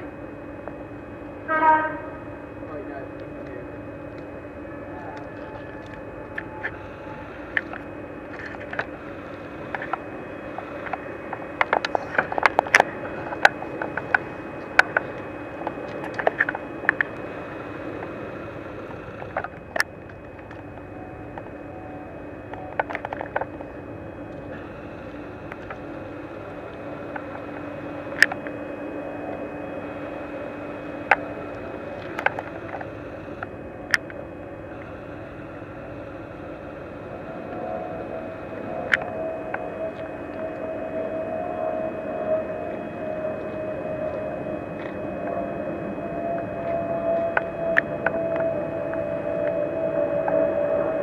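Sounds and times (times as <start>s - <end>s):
steam locomotive hissing: 4.7s - 8.3s.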